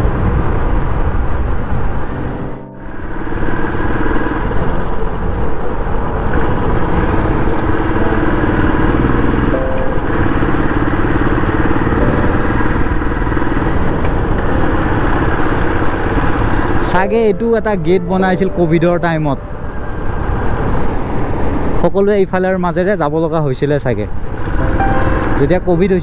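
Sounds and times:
wind rushing on microphone: 0.0 - 9.3
motorcycle engine running: 0.0 - 17.0.

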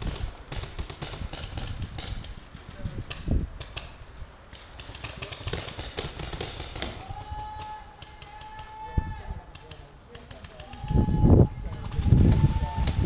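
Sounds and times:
paintball markers popping: 9.5 - 11.0.

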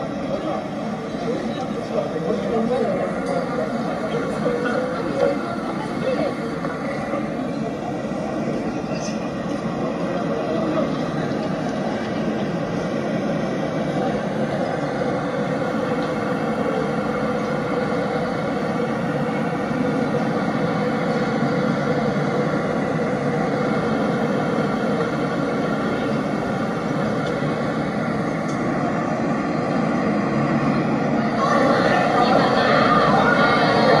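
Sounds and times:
road traffic passing: 0.0 - 34.0.

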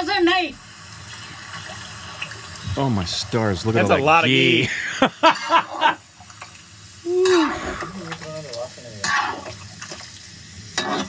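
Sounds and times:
person's voice: 2.7 - 4.8
chicken frying in a pan: 3.3 - 11.0.

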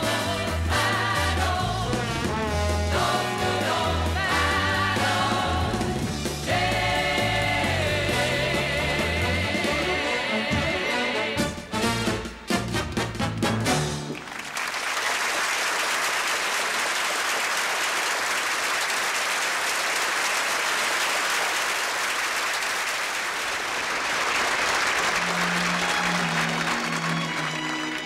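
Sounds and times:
audience applauding: 14.1 - 28.0
soft orchestral music: 25.1 - 28.0.

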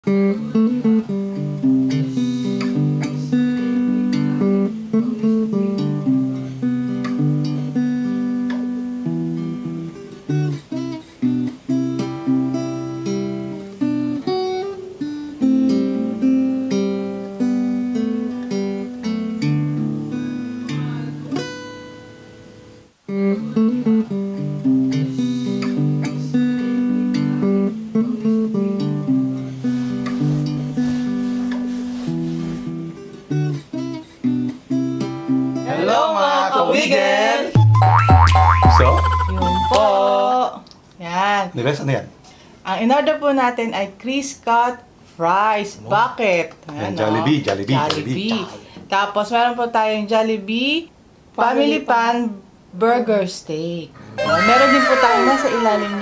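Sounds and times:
acoustic guitar instrumental: 0.0 - 35.9, 37.6 - 40.0.

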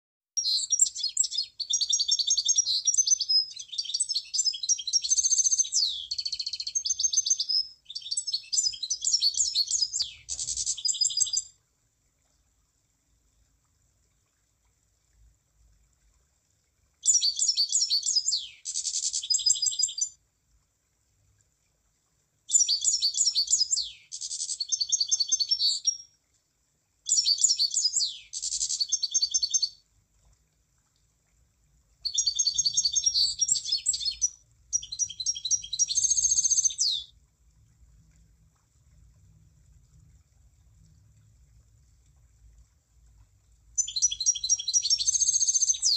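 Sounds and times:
bird trilling song: 0.4 - 11.5, 17.0 - 20.2, 22.5 - 26.1, 27.1 - 29.8, 32.0 - 37.1, 43.8 - 45.9.

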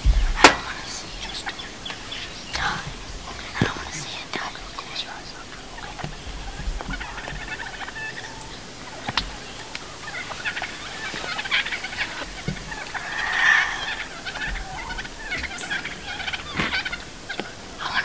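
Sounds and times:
turkeys gobbling: 0.0 - 18.0.

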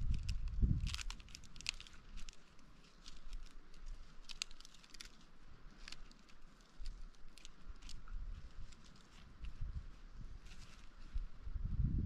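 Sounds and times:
crackling and crunching clicks: 0.0 - 9.6.

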